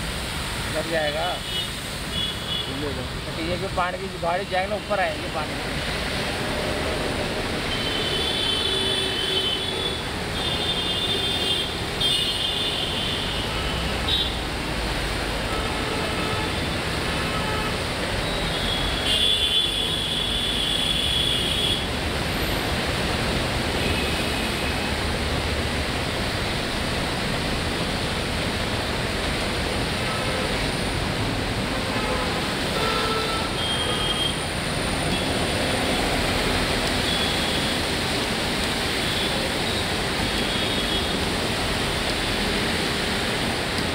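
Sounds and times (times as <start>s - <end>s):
traffic hissing on wet road: 0.0s - 43.9s.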